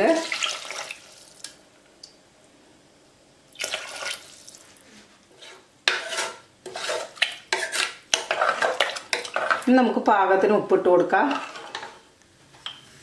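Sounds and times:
ladle scraping metal pot: 5.3s - 9.8s, 10.9s - 12.1s.

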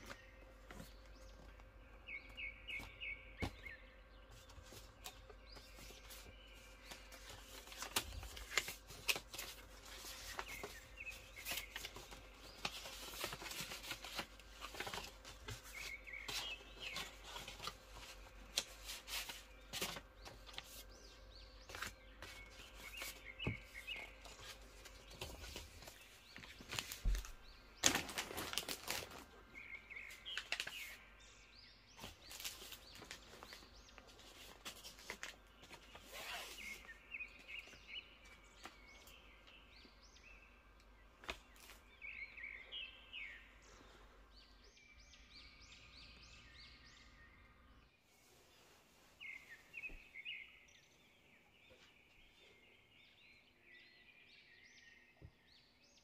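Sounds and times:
paper cards rustling and tapping: 0.0s - 29.3s, 30.1s - 31.0s, 32.0s - 39.2s, 41.2s - 41.8s
birds chirping: 0.0s - 56.0s.

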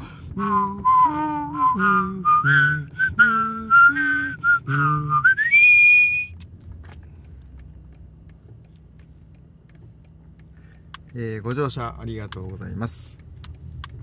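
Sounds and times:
faint low rumble: 0.0s - 14.0s
person whistling melody: 0.4s - 6.3s.

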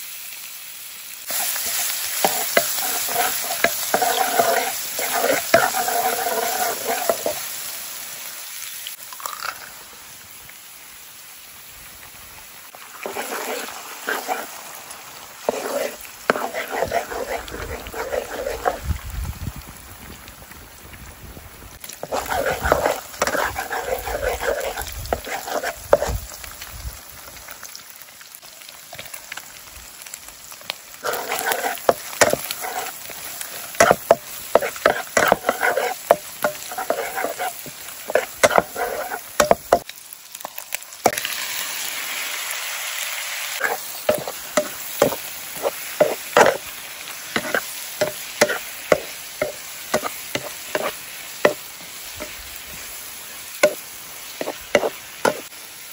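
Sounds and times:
eggs sizzling in a pan: 0.0s - 55.9s
spatula scraping and tapping pan: 1.3s - 7.4s, 13.0s - 14.5s, 15.4s - 18.8s, 21.9s - 26.2s, 31.0s - 39.9s, 43.6s - 46.7s, 47.4s - 52.4s, 53.6s - 53.8s, 54.4s - 55.5s.

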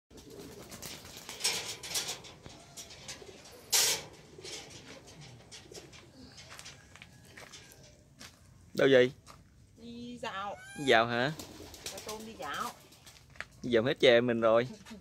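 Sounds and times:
birds calling: 2.1s - 8.6s, 10.2s - 13.1s
footsteps on dirt path: 5.9s - 9.6s, 13.1s - 13.6s.

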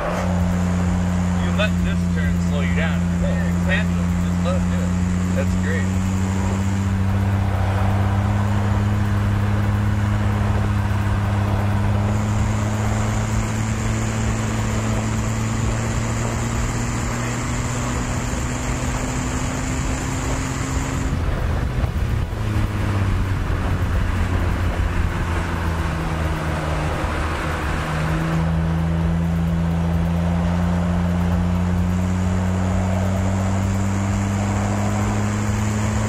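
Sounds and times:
car engine pulling under load: 0.0s - 36.0s
wind and road noise: 0.0s - 36.0s.

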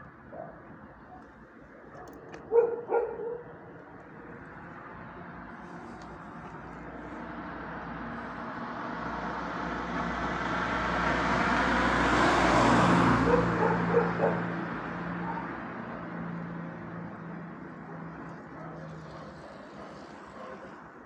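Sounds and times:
car passing: 0.0s - 21.0s
dog barking: 1.9s - 3.6s, 13.2s - 14.6s, 15.2s - 15.6s, 17.8s - 20.8s.

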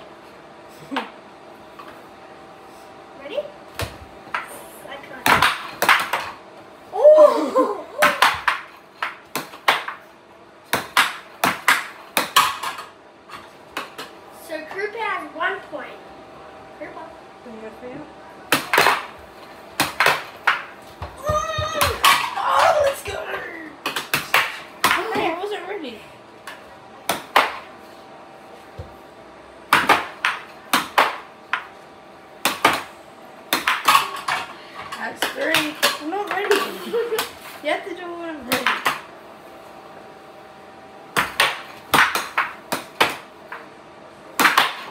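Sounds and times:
air hockey puck clacking: 5.2s - 6.4s, 8.0s - 10.0s, 10.7s - 14.2s, 18.5s - 19.2s, 19.8s - 23.2s, 23.8s - 25.3s, 26.4s - 27.7s, 29.7s - 31.8s, 32.4s - 37.4s, 38.5s - 39.1s, 41.1s - 43.7s, 44.4s - 44.9s.

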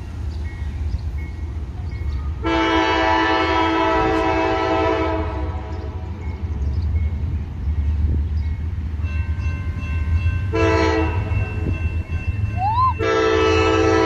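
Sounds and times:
low steady train rumble: 0.0s - 14.0s
locomotive air horn blast: 2.4s - 6.1s, 10.5s - 11.4s, 13.0s - 14.0s.

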